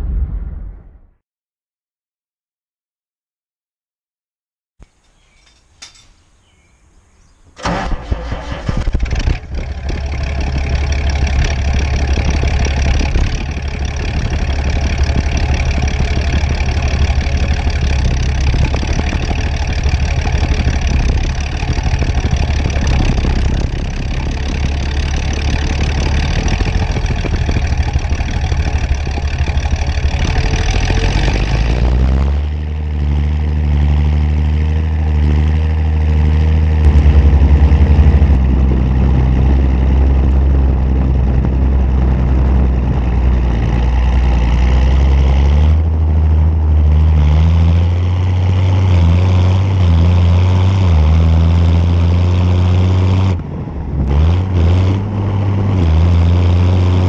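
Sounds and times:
tractor engine running steadily: 4.8 - 57.0
tractor diesel engine cranking: 7.4 - 33.2.

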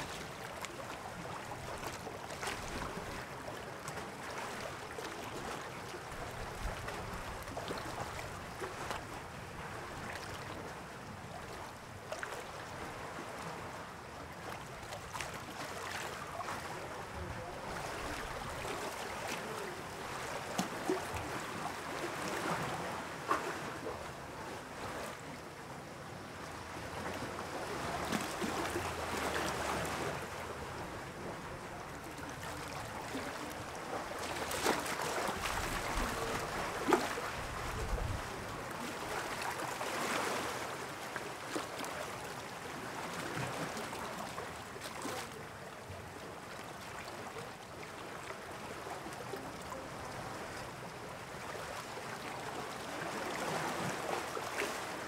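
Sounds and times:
sea waves washing in: 0.0 - 46.2
wind: 0.0 - 55.0.

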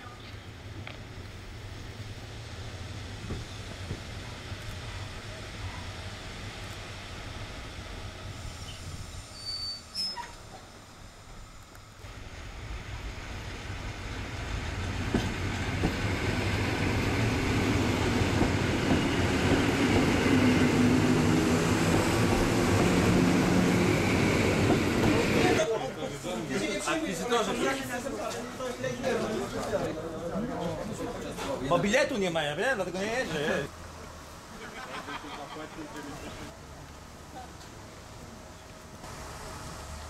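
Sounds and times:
train wheels on rails: 0.0 - 25.8, 38.6 - 40.0
train motors humming: 0.0 - 40.0.

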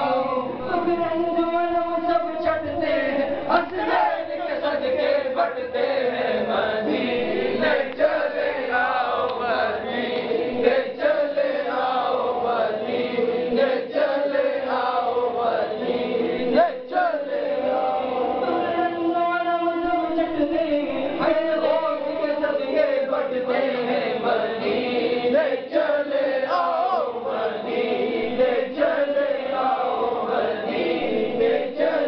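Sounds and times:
man chanting melodically: 0.0 - 6.0, 18.4 - 23.2, 26.5 - 27.2.

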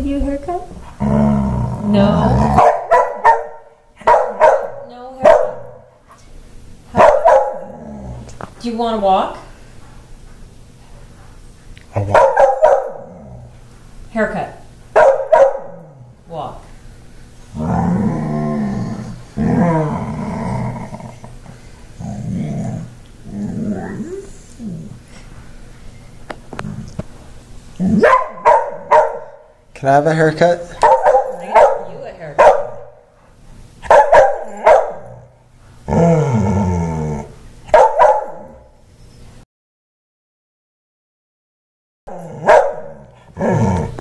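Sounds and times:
dog growling complaints: 0.8 - 2.7, 7.5 - 8.4, 12.9 - 13.6, 17.5 - 25.1, 27.7 - 28.2, 34.5 - 37.4, 42.1 - 44.0
dog barking angrily: 2.4 - 5.9, 6.9 - 7.8, 11.9 - 13.3, 14.9 - 16.0, 27.8 - 29.6, 30.8 - 33.0, 33.8 - 35.3, 37.6 - 38.7, 42.1 - 44.0.

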